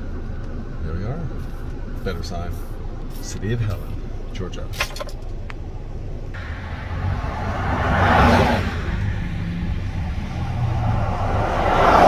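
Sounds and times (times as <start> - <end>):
car road and engine rumble: 0.0 - 12.0
passing vehicle whooshing by: 6.4 - 12.0.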